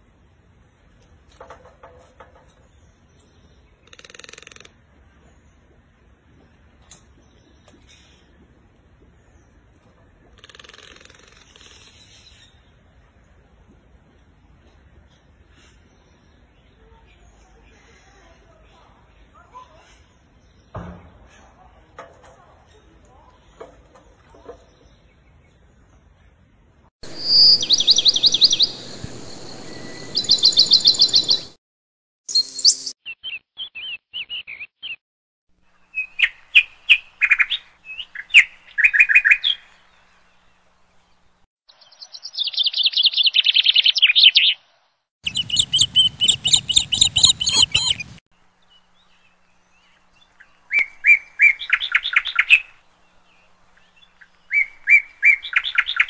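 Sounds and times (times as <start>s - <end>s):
birds chirping and trilling: 0.6s - 13.1s, 14.7s - 31.6s, 32.3s - 35.0s, 35.6s - 56.0s.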